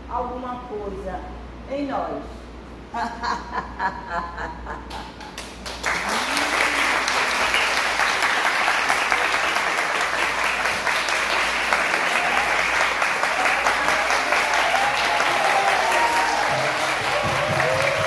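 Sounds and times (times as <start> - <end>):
audience applauding: 5.3 - 18.0.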